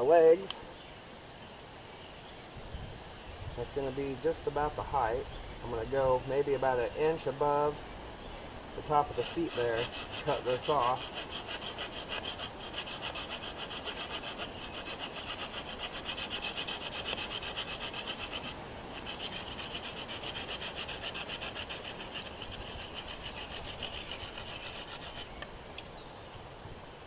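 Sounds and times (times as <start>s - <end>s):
hand saw cutting wood: 8.8s - 25.4s.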